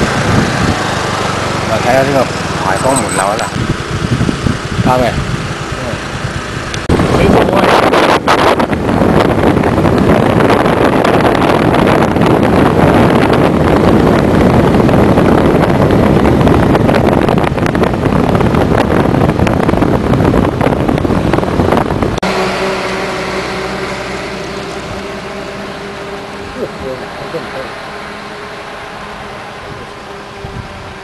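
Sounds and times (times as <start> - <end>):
road and wind noise from vehicle: 0.0 - 31.0
steady hum with held tones: 22.2 - 31.0.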